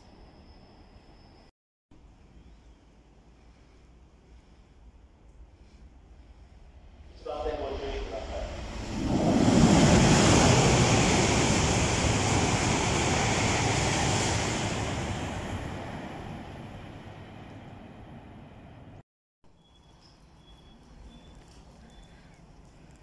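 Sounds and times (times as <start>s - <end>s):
high-speed train passing: 4.3s - 19.0s.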